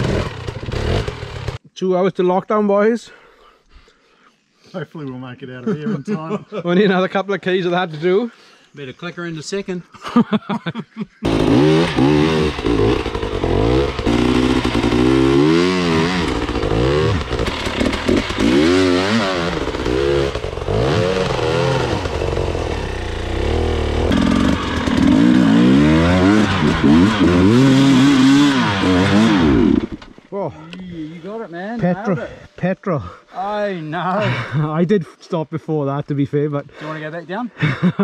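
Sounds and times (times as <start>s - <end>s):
dirt bike engine revving: 0.0s - 1.6s, 11.2s - 30.2s.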